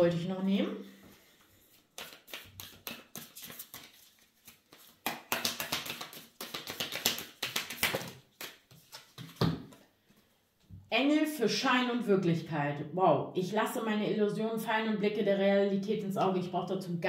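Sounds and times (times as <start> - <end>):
cards being shuffled: 1.7 - 9.8.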